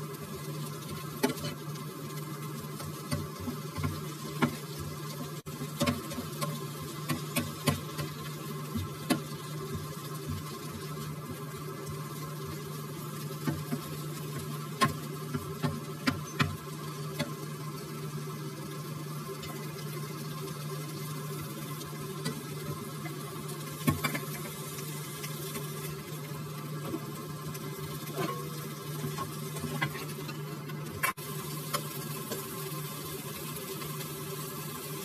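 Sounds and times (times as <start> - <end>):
bacon and onion sizzling: 0.0 - 35.0
spatula scraping pan: 0.8 - 1.7, 28.0 - 31.9.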